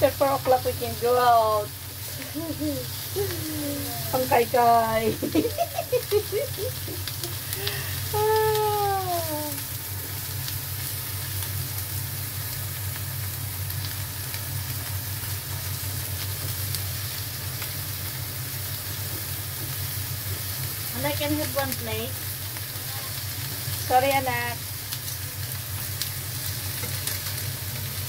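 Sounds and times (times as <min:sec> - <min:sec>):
prawns sizzling on grill pan: 0:00.0 - 0:28.0
falling voice-like hum: 0:02.2 - 0:04.2.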